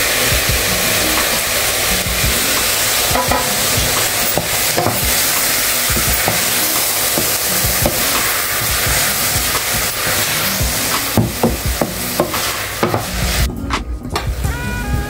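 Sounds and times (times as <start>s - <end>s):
onions sizzling in hot oil: 0.0s - 13.5s
wooden spoon knocking on pot: 3.1s - 5.3s, 11.1s - 13.1s.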